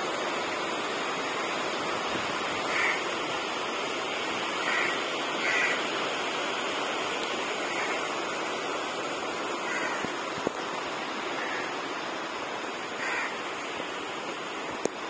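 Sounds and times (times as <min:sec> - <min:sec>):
rain on metal roofs: 0:00.0 - 0:15.0.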